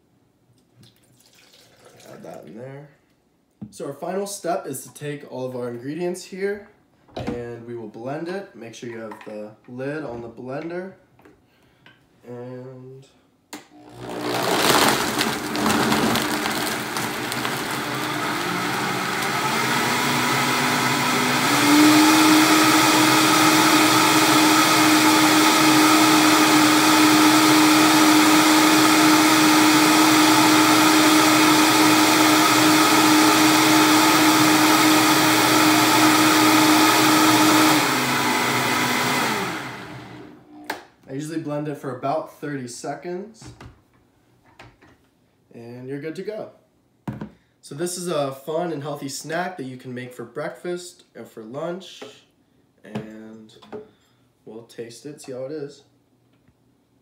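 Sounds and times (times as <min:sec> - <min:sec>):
blender crushing ice: 0:13.7 - 0:40.4.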